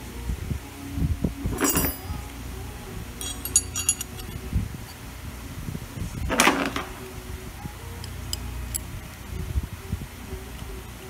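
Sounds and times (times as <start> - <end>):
metal bolt and tools clinking: 1.6 - 2.1, 3.2 - 4.4, 8.0 - 8.9.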